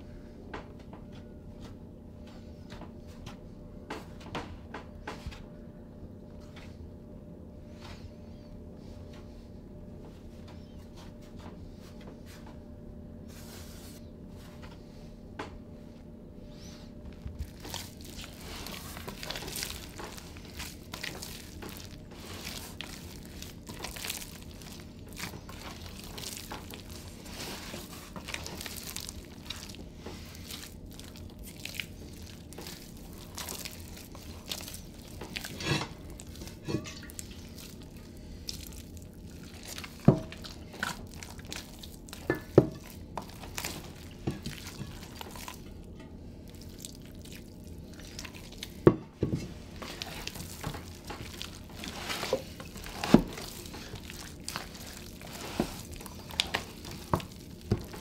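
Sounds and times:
hands mixing wet dough: 0:13.3 - 0:15.6, 0:16.4 - 0:58.0.

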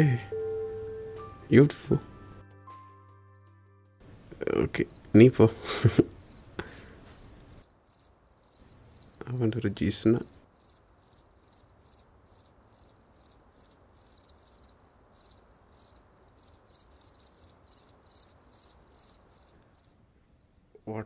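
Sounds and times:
low background hiss: 0:00.0 - 0:02.6, 0:04.0 - 0:21.0
crickets chirping: 0:04.0 - 0:21.0.

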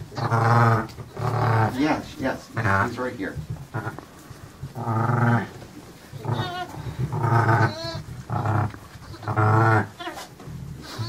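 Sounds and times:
ewe low bleating: 0:00.1 - 0:03.0, 0:03.7 - 0:04.1, 0:04.7 - 0:11.0
lambs high wavering bleats: 0:03.7 - 0:04.0, 0:06.2 - 0:11.0.

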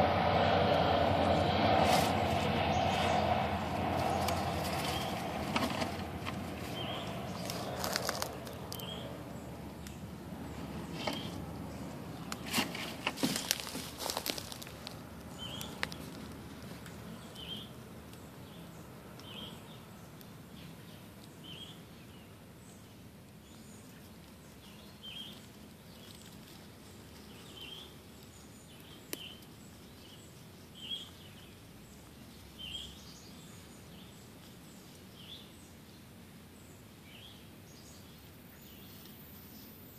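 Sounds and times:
outdoor hush: 0:00.0 - 0:39.9
dry leaves rustling and crackling: 0:01.8 - 0:17.6, 0:23.9 - 0:28.5.

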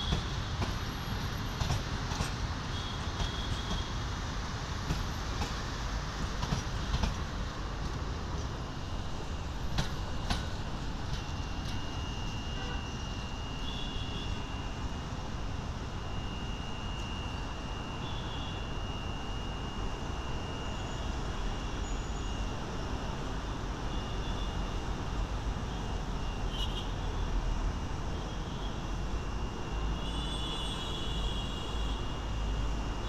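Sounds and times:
train rumbling: 0:00.0 - 0:13.4
road traffic: 0:00.0 - 0:33.0.

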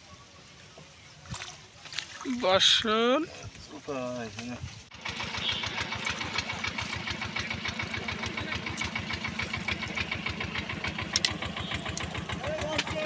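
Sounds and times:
small engine chugging: 0:04.9 - 0:13.0.

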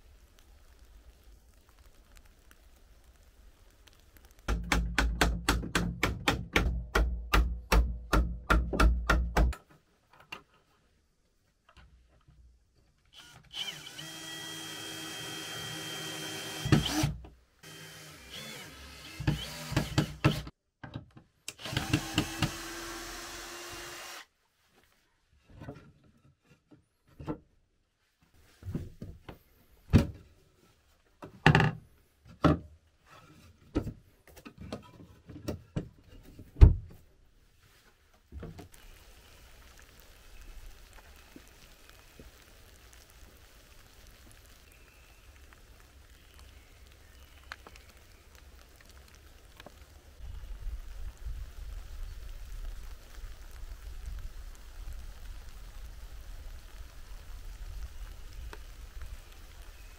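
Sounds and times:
cordless drill motor whine: 0:13.2 - 0:19.8.

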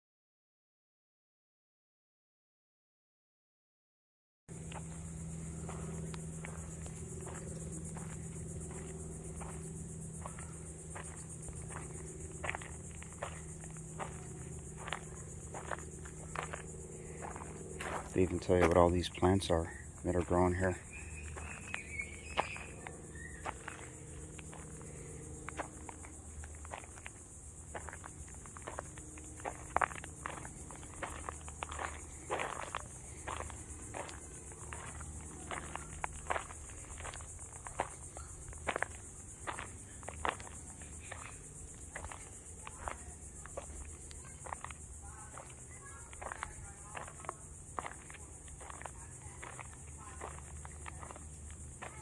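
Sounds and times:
low hum: 0:04.5 - 0:44.1
footsteps on gravel: 0:04.5 - 0:52.0
insects chirping: 0:04.5 - 0:52.0.

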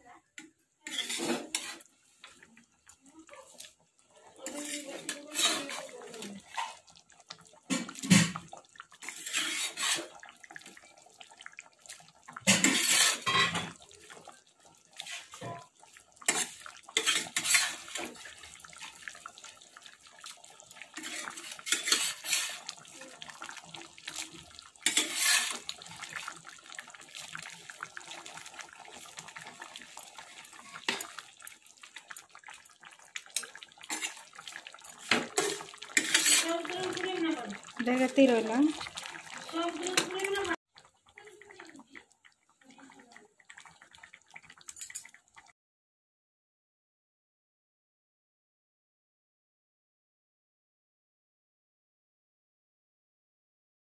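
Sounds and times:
spatula scraping metal pan: 0:00.8 - 0:01.9, 0:04.4 - 0:06.8, 0:09.0 - 0:10.2, 0:12.5 - 0:13.8, 0:16.3 - 0:18.2, 0:21.0 - 0:22.8, 0:24.8 - 0:25.9, 0:33.4 - 0:34.3, 0:34.9 - 0:38.6
curry sloshing: 0:04.4 - 0:14.3, 0:14.9 - 0:31.6, 0:33.2 - 0:40.6.

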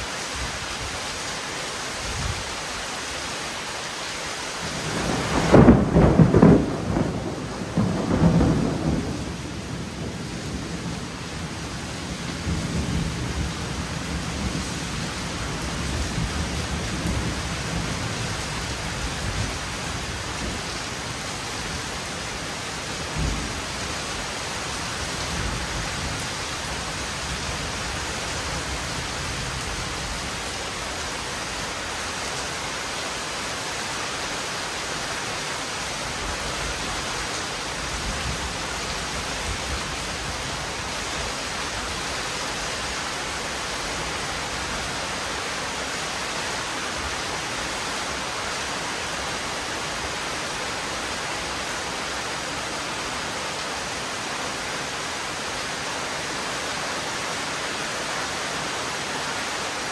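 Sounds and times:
heavy rain pouring: 0:00.0 - 0:59.9.

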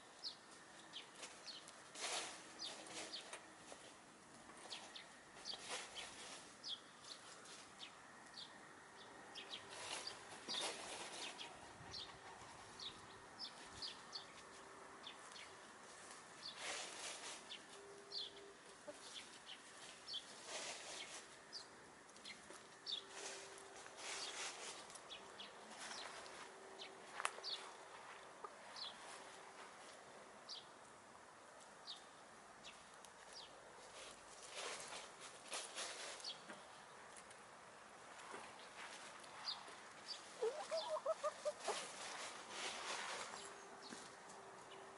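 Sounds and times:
rustling and pecking in grass: 0:00.0 - 0:08.4, 0:09.4 - 0:30.4, 0:31.5 - 0:44.9
hens clucking: 0:40.2 - 0:42.9.

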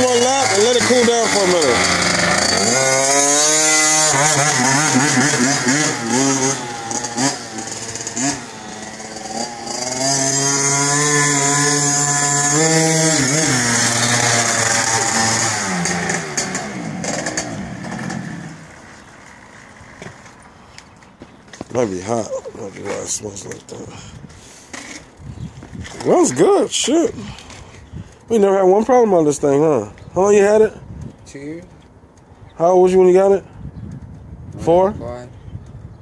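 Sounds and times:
dirt bike engine revving: 0:00.0 - 0:20.3.

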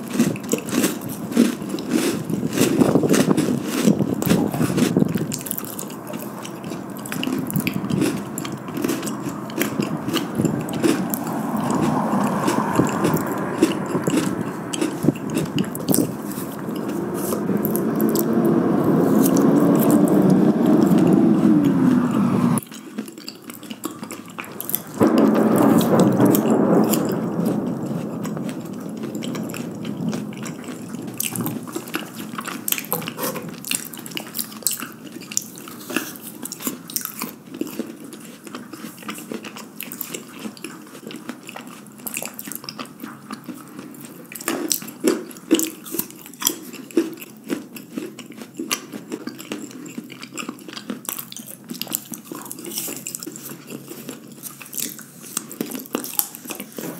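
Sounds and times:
crisp chewing clicks: 0:00.0 - 0:18.4, 0:28.4 - 0:56.9.

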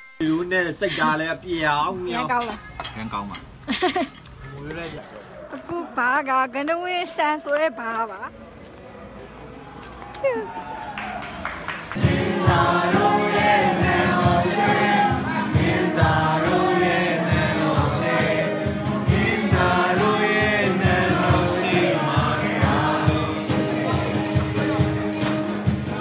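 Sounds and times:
several voices singing a song: 0:12.0 - 0:26.0.

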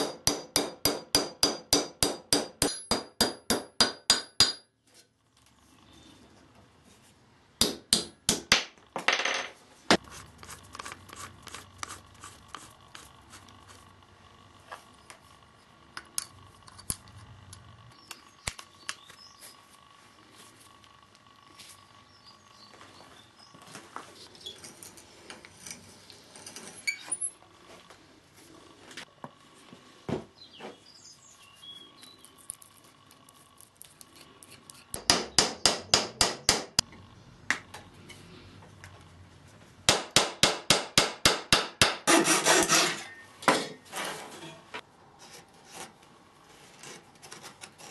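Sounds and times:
hammer striking wooden dowels: 0:00.0 - 0:04.7, 0:07.6 - 0:10.0, 0:35.0 - 0:36.8, 0:39.9 - 0:42.3.

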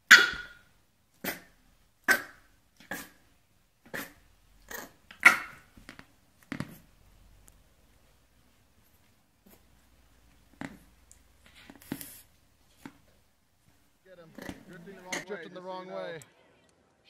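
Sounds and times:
puppy barking: 0:00.0 - 0:00.6, 0:01.2 - 0:03.2, 0:03.9 - 0:05.7.

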